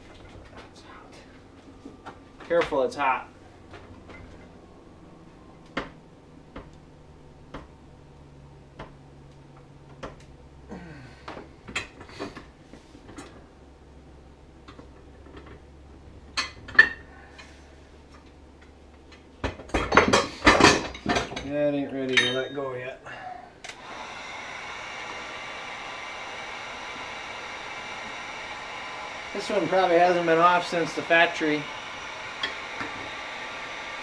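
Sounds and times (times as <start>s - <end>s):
steady low hum: 0.0s - 34.0s
sharp metal clanks: 22.1s - 22.8s.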